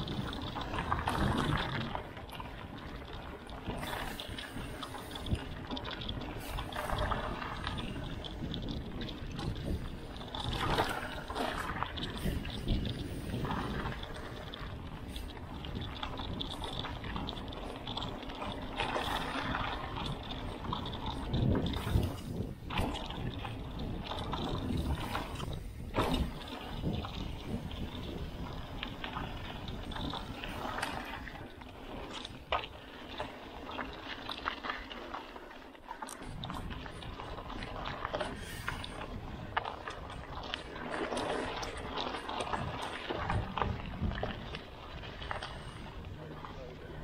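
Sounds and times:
bicycle rattles and knocks: 0.0 - 47.0
bicycle tyres on dirt trail: 0.0 - 47.0
wind rumbling on microphone: 0.0 - 47.0
bike bumps: 3.6 - 31.0.

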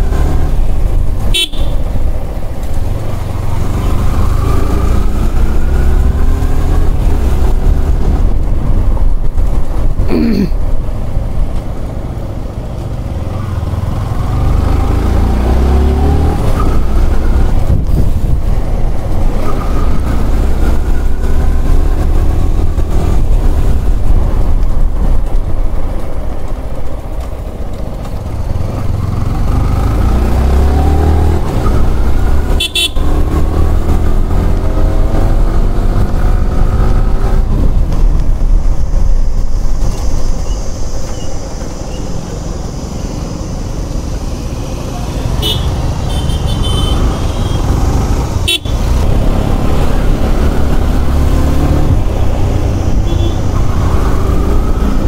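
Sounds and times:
wind rumble on microphone: 0.0 - 14.7, 15.4 - 44.5, 47.6 - 55.0
motorcycle engine accelerating: 0.0 - 55.0
vehicle horn tooting: 1.3 - 1.9, 32.6 - 33.1, 45.4 - 47.7, 48.4 - 48.8, 53.0 - 53.5.

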